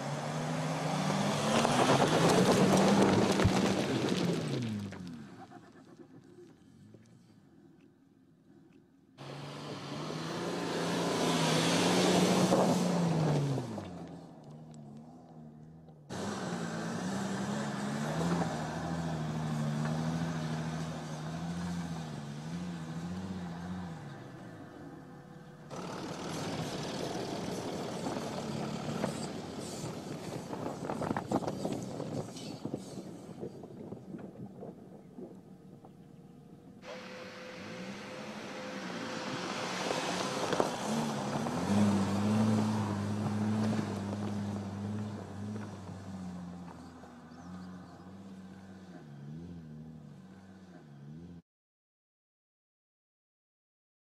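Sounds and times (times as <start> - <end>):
off-roader engine pulling: 0.0 - 7.8, 8.6 - 51.4
suv engine running: 25.0 - 32.0, 35.5 - 48.2.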